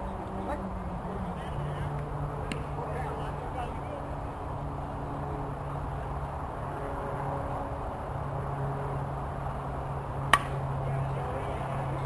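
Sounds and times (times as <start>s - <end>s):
bat striking ball: 10.3s - 10.7s.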